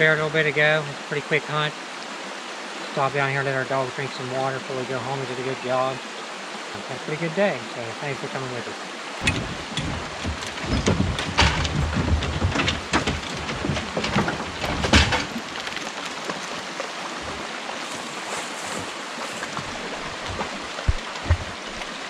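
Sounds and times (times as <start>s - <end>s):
creek water rushing: 0.0s - 22.0s
dogs jumping on wooden box: 9.2s - 17.4s.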